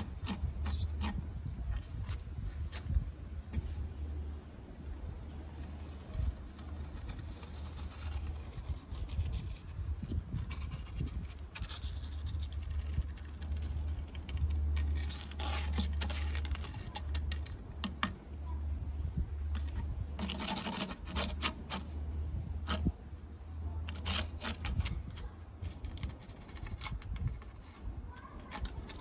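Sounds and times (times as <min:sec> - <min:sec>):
leaf scraping on wood: 0:05.3 - 0:18.7, 0:19.4 - 0:23.0, 0:23.8 - 0:29.0.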